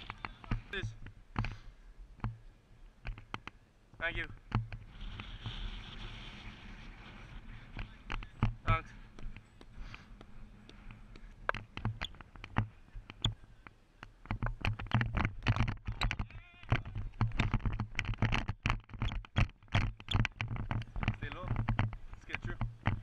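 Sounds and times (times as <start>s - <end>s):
camera knocks and clicks: 11.1s - 13.4s, 14.0s - 23.0s.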